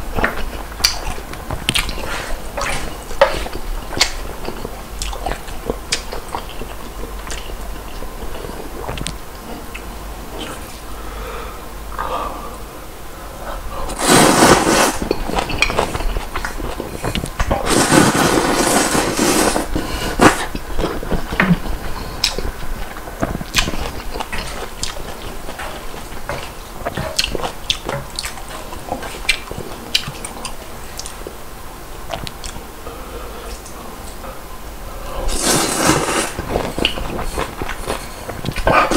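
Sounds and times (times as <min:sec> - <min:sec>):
person slurping noodles: 0:13.8 - 0:16.1, 0:16.8 - 0:22.4, 0:35.1 - 0:38.9
wet chewing smacks: 0:36.4 - 0:38.9.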